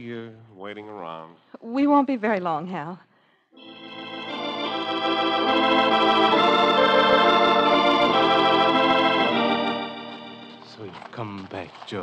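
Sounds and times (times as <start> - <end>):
organ sustained chords: 3.6 - 11.2.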